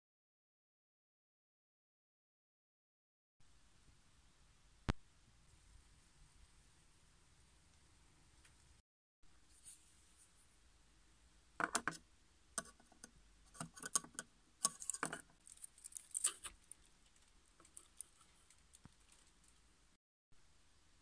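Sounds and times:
clicks and crinkles of foil: 14.6s - 19.7s.

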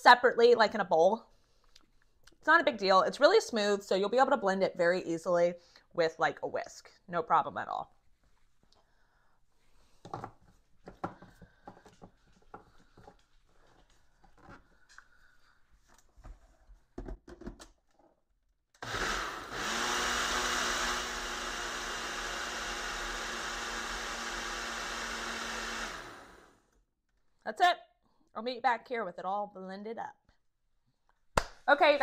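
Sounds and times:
blender motor running: 18.8s - 26.7s.

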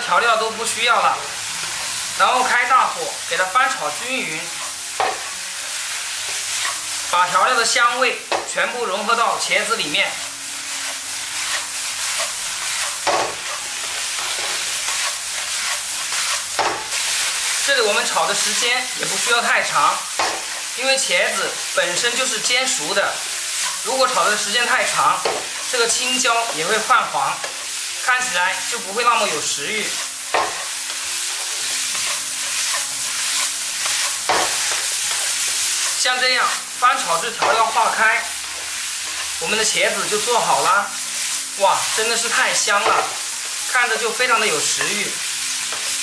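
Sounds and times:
vegetables sizzling in a wok: 0.0s - 46.0s
wooden spatula scraping: 9.7s - 17.0s, 29.4s - 36.7s.

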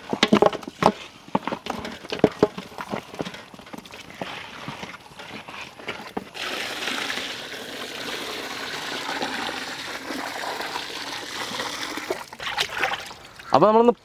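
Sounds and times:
water pouring into a metal pot: 6.3s - 13.4s.

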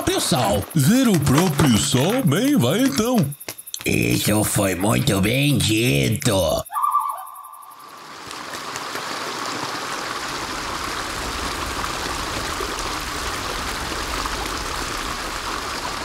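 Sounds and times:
rushing hissing sea water: 7.8s - 16.0s.

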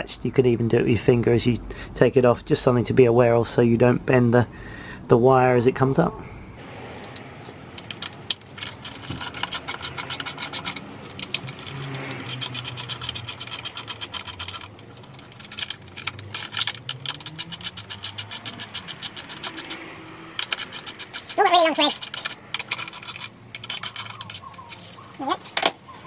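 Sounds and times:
hand ratchet clicking: 7.8s - 24.8s.

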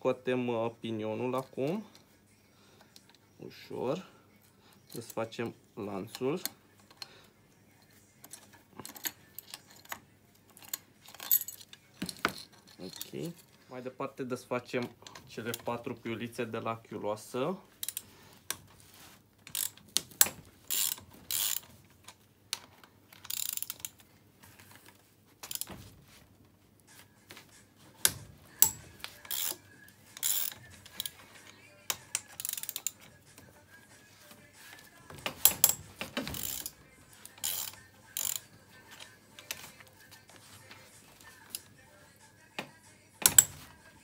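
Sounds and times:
socket ratchet wrench clicking: 19.5s - 21.7s, 23.2s - 23.9s, 28.0s - 31.2s, 31.9s - 33.1s, 35.3s - 38.5s.

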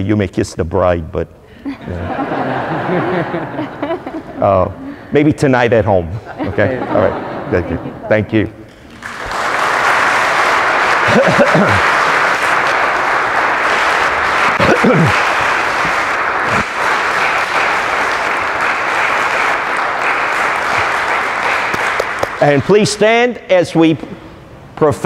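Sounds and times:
congregation applauding: 8.7s - 23.0s.

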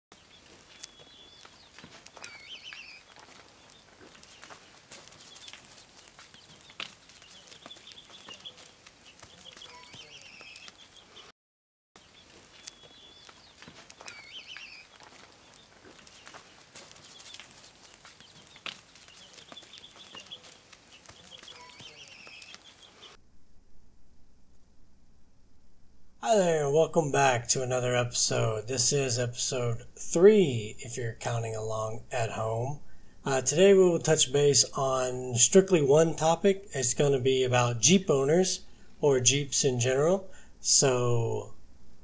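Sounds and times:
short bird calls: 0.2s - 11.3s, 12.0s - 23.2s
low hiss: 22.1s - 42.0s.

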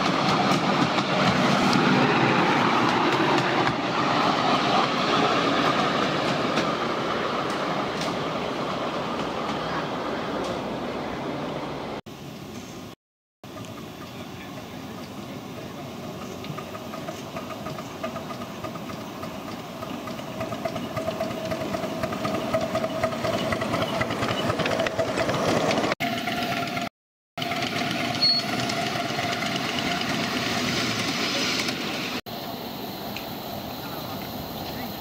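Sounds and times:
miniature steam locomotive running: 13.5s - 35.0s
miniature train steady tone: 13.5s - 35.0s.

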